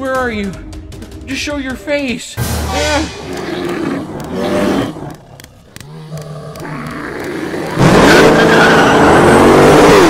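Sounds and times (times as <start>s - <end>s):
race car engine revving: 2.7s - 10.0s.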